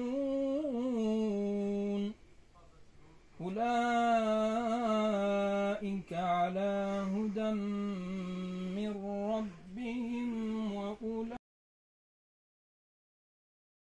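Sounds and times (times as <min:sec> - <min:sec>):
person chanting religious recitation: 0:00.0 - 0:02.2, 0:03.4 - 0:11.4.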